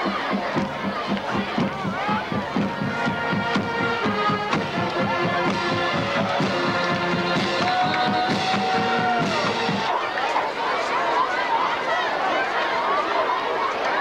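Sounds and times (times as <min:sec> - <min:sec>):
steady drumbeat: 0:00.0 - 0:09.9
marching band long notes: 0:00.0 - 0:10.3.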